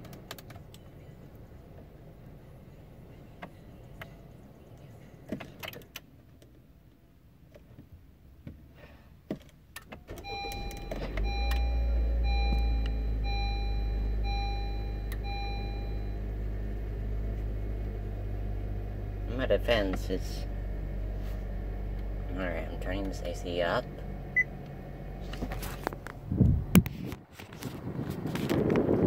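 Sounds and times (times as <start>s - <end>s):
clicks and knocks inside car: 7.4s - 11.3s
car engine running: 10.0s - 29.0s
dashboard warning chime: 10.2s - 16.3s.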